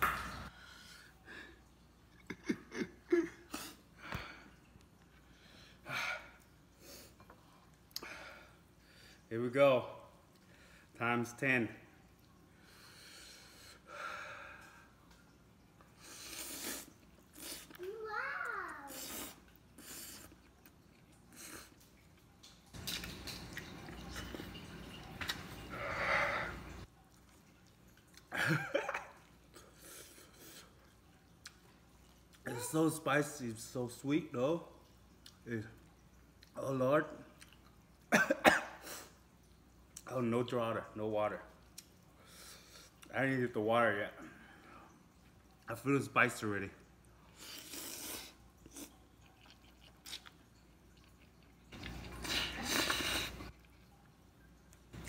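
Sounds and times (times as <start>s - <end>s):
man chewing: 16.0s - 17.8s, 18.9s - 25.8s, 47.3s - 55.0s.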